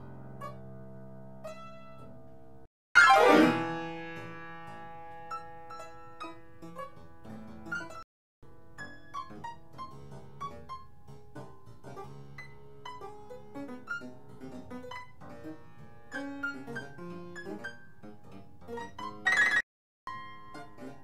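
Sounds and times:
piano music: 3.0 - 8.0, 12.4 - 21.0.

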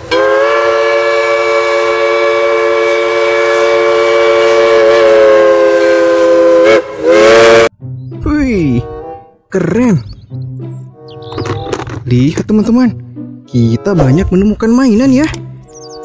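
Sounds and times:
steam locomotive whistle: 0.0 - 7.7.

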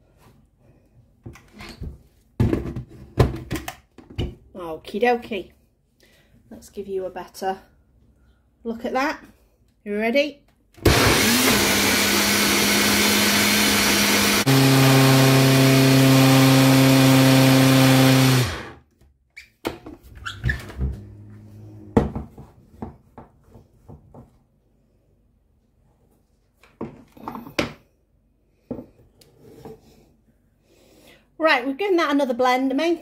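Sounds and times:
blender motor running: 10.8 - 18.8.

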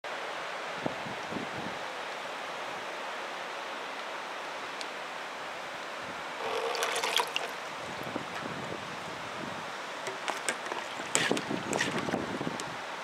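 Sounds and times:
water gurgling and splashing: 6.4 - 8.4, 9.9 - 12.3
water trickling through a hose: 6.4 - 8.6, 9.9 - 12.7
air bubbling through water: 10.1 - 12.2.

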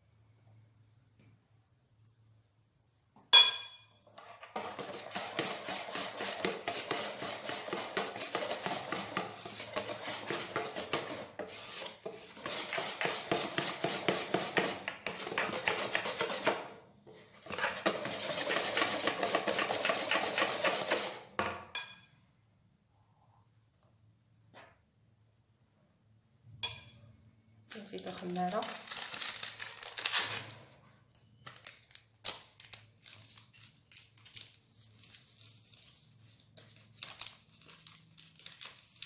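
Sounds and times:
sharp clink: 3.3 - 4.0
whisk scraping against bowl: 4.1 - 21.3.

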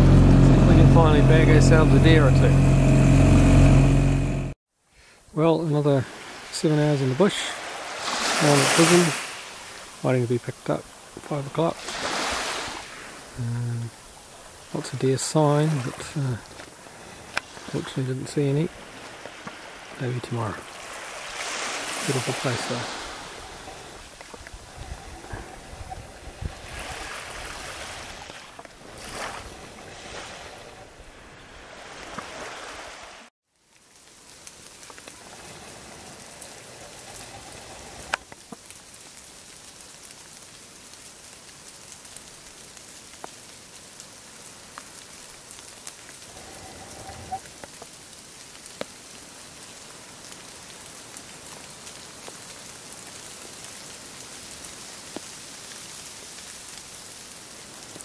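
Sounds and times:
rain falling on foliage: 5.2 - 25.0, 33.5 - 58.0
small waves washing onto sand: 5.7 - 13.4, 14.0 - 33.3, 33.9 - 58.0.

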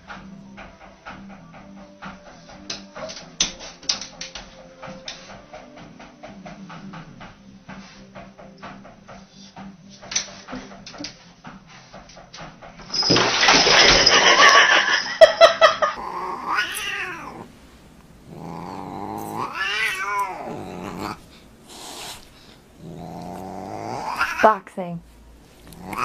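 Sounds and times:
cat yowling: 16.0 - 17.5, 18.3 - 21.2, 22.8 - 24.6, 25.7 - 26.0.

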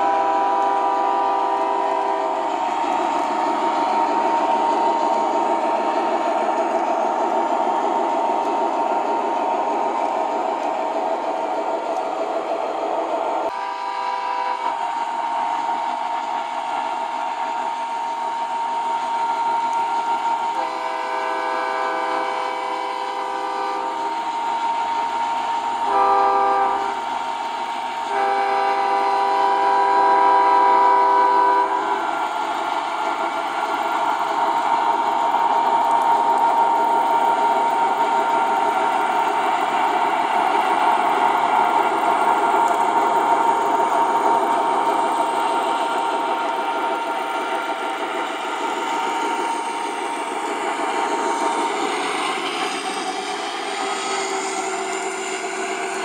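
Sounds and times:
model train diesel horn: 0.0 - 2.4, 13.5 - 14.8, 19.3 - 24.2, 25.8 - 27.0, 28.1 - 32.0
model train rolling on track: 0.0 - 56.0.

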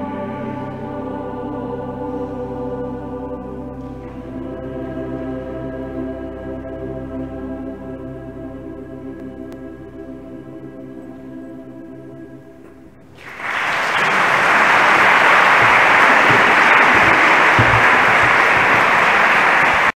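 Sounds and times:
choir and organ chord: 0.0 - 19.9
audience applause: 13.2 - 20.0.

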